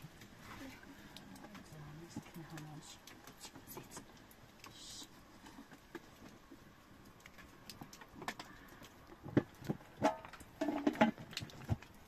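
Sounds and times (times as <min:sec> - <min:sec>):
wood fire crackling: 0:00.0 - 0:12.0
metal pot knocks and clanks: 0:10.0 - 0:11.4.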